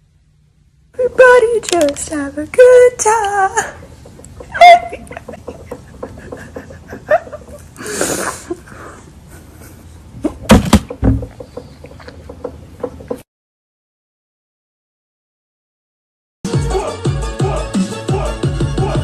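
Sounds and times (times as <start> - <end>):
girl crying and sobbing: 4.5 - 5.4
sniffling breaths: 5.7 - 10.1.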